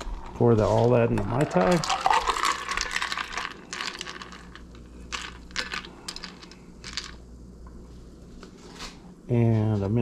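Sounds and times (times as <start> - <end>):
ice clinking: 0.0 - 7.2
ice clattering into glass: 1.3 - 4.6.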